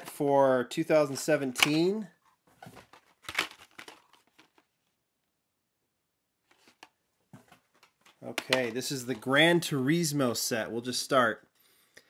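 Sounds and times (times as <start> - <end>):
packaging crinkling and rustling: 2.6 - 4.8.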